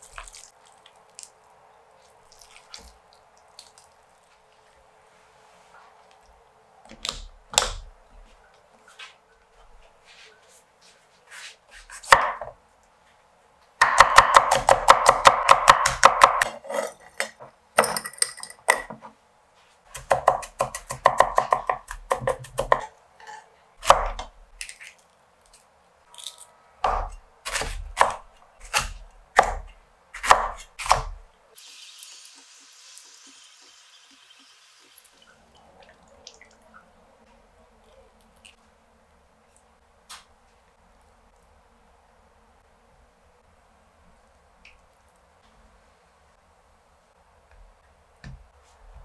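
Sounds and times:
cleaver chopping on wooden board: 0:13.8 - 0:16.5, 0:26.8 - 0:31.2.

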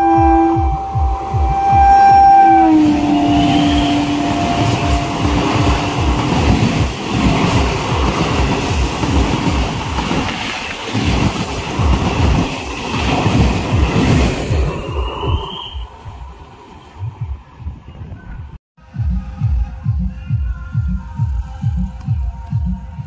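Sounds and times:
train horn: 0:00.0 - 0:06.9
train rumbling past: 0:00.0 - 0:18.2.

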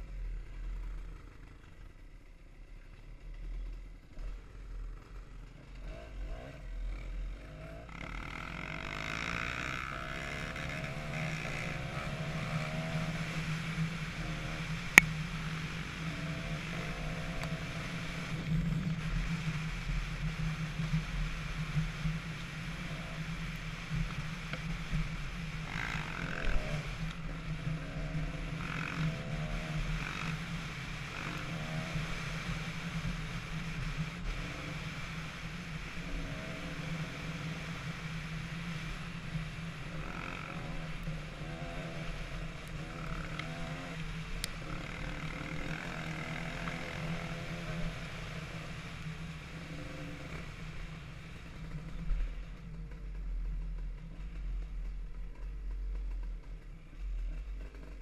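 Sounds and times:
dirt bike engine running: 0:00.0 - 0:58.0.

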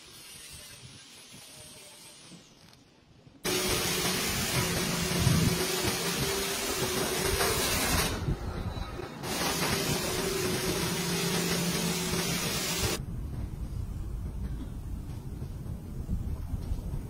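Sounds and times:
pressure washer spraying water: 0:03.4 - 0:08.2, 0:09.2 - 0:13.0.

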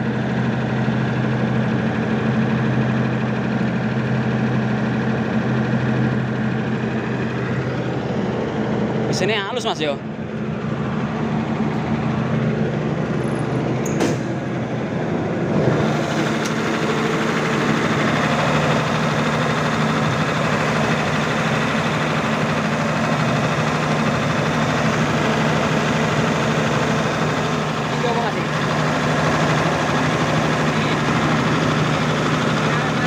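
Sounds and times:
diesel generator humming: 0:00.0 - 0:33.0
sharp click: 0:13.8 - 0:14.3.

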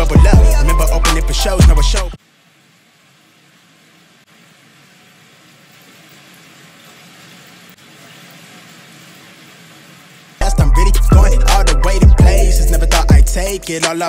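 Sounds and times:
food sizzling in a pan: 0:02.5 - 0:10.4.

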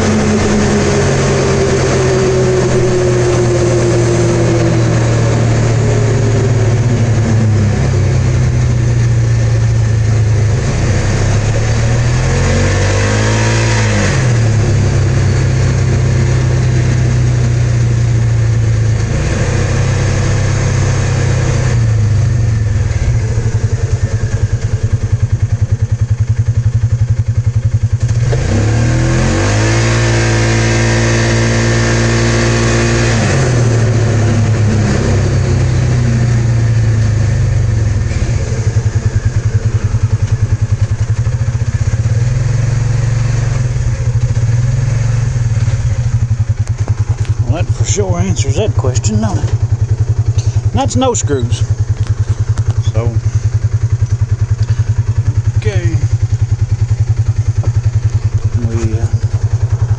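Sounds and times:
off-road vehicle engine running: 0:00.0 - 0:59.9.

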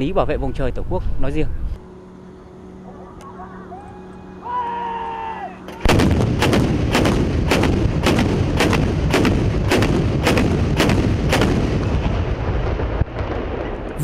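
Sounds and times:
autocannon firing: 0:05.7 - 0:13.2
heavy rumble of firing: 0:05.7 - 0:14.0.

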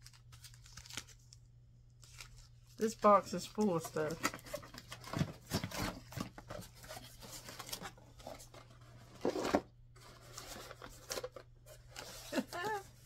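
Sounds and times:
cardboard box rustling and knocks: 0:04.2 - 0:07.9.

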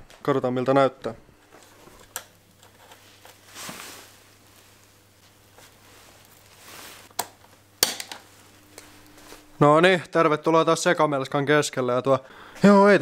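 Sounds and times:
handling rustle: 0:01.5 - 0:07.1.

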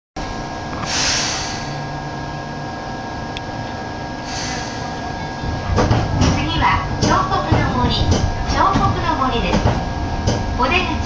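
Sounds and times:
train electrical hum: 0:00.2 - 0:11.0
short hiss: 0:04.3 - 0:04.9.

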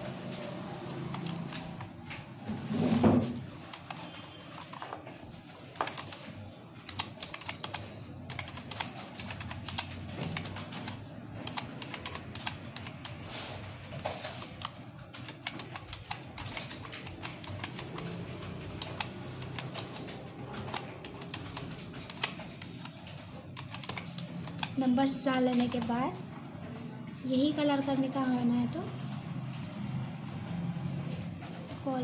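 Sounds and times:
keyboard typing clicks: 0:00.8 - 0:02.3, 0:05.7 - 0:13.2, 0:14.4 - 0:26.1.

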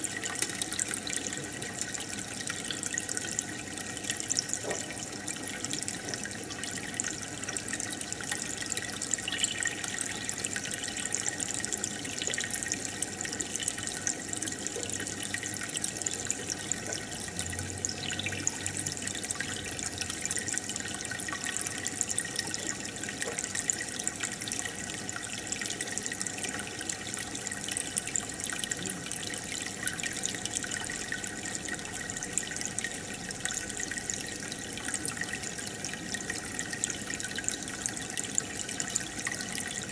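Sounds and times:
aquarium water bubbling: 0:00.0 - 0:39.9.

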